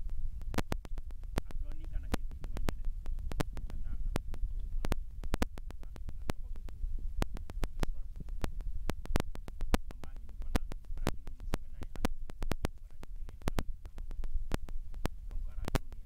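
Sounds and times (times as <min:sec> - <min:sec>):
low microphone rumble: 0:00.0 - 0:16.0
sharp crackling clicks: 0:00.0 - 0:16.0
faint speech: 0:01.4 - 0:05.0, 0:09.8 - 0:14.2, 0:15.2 - 0:16.0.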